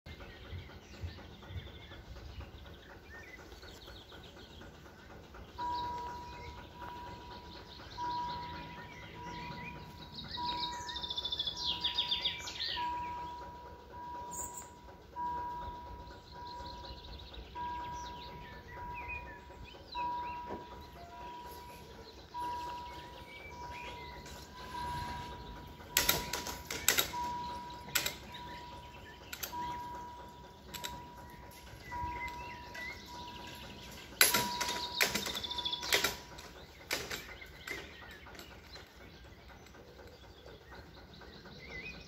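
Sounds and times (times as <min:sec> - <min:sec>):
birds singing: 0:00.1 - 0:42.0
crossing signal beeping: 0:17.5 - 0:36.5.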